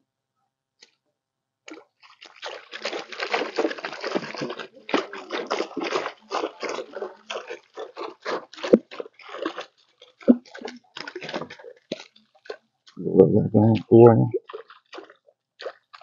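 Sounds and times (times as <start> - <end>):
water splashing off a trap: 1.7 - 7.0.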